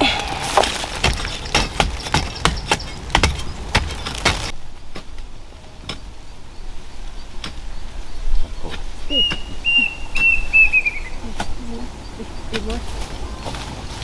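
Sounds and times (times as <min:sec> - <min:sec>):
sticks striking hard earth: 0:00.0 - 0:06.1.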